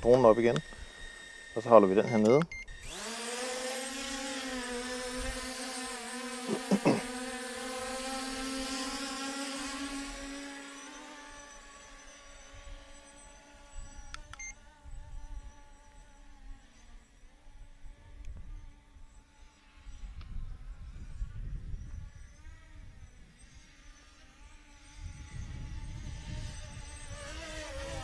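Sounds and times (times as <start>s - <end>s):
drone motors buzzing: 0.0s - 28.0s
short beeps: 1.5s - 2.8s.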